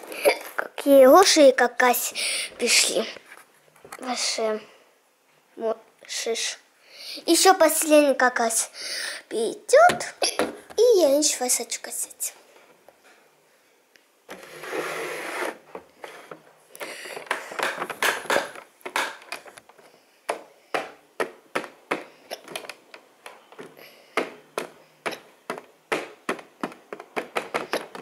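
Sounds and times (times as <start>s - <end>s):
toy scraping and rolling: 14.3s - 16.4s.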